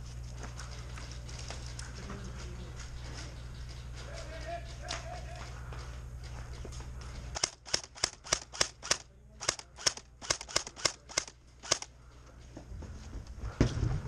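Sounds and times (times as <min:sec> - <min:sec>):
airsoft gun snaps: 0:07.4 - 0:11.9.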